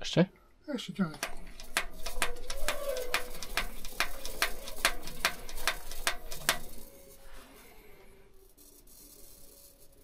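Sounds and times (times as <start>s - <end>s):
hand fuel pump clicking: 1.2s - 6.8s.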